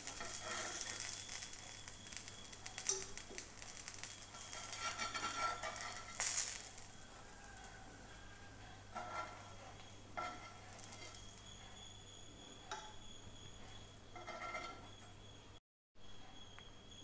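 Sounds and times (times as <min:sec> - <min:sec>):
vegetables sizzling in oil: 0:00.0 - 0:14.4
metal tongs clicking and scraping: 0:04.3 - 0:07.7.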